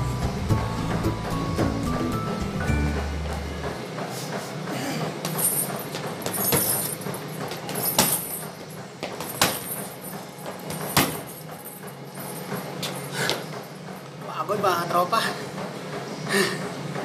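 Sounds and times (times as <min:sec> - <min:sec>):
gloves striking heavy bag: 0:05.3 - 0:08.4, 0:09.1 - 0:10.1, 0:10.7 - 0:11.4.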